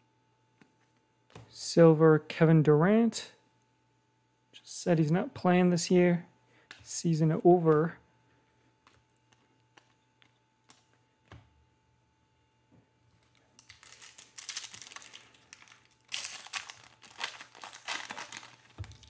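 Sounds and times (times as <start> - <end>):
foil wrapper crinkling and tearing: 13.1 - 19.0.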